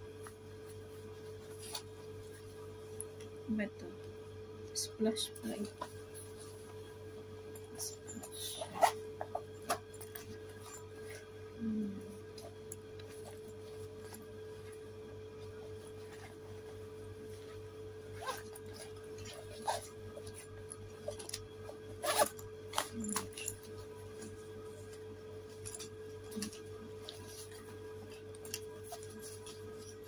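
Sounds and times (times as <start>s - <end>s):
electrical hum: 0.0s - 30.0s
fabric bag rustling and unzipping: 7.8s - 11.2s, 15.4s - 30.0s.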